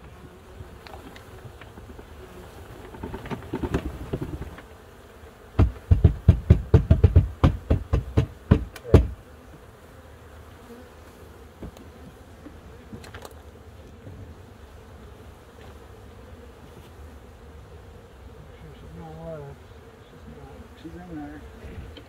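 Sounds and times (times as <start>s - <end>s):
bees buzzing: 0.0s - 22.0s
sharp wooden knocks: 2.8s - 4.6s, 5.6s - 9.2s.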